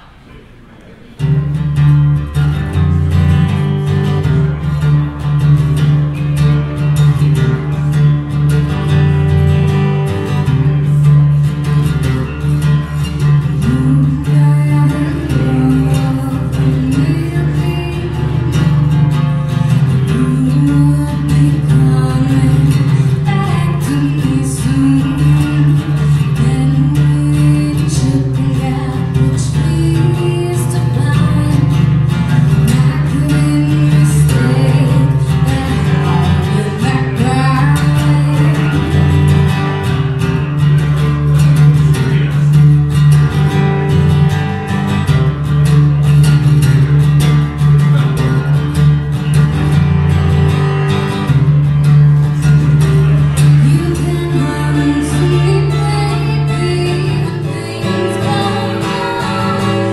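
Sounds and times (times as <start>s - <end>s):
acoustic guitar: 0.0s - 59.9s
woman singing: 13.1s - 40.0s, 52.8s - 59.9s.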